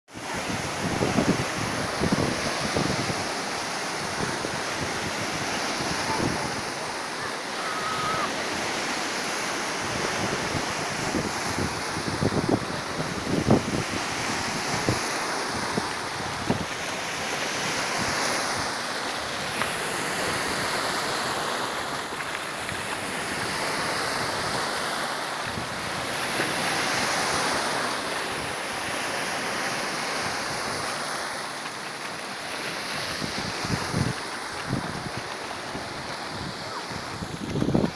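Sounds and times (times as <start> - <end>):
waves breaking in shallows: 0.1 - 37.9
wind hitting microphone: 33.0 - 37.9.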